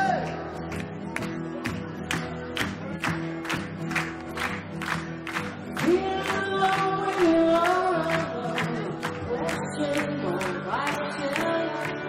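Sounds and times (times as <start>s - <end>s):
audience clapping along: 0.0s - 12.0s
person singing: 5.8s - 12.0s.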